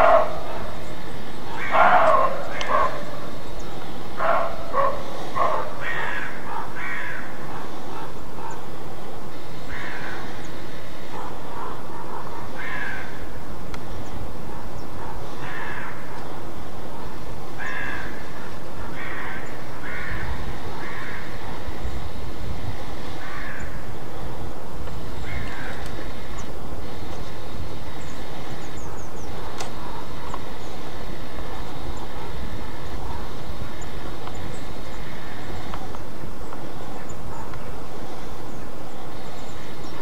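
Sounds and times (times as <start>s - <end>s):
deer barking: 0.0s - 9.1s, 11.0s - 13.2s, 14.4s - 21.8s, 25.0s - 26.3s, 28.8s - 30.6s, 31.3s - 34.2s
steady hiss: 0.0s - 40.0s.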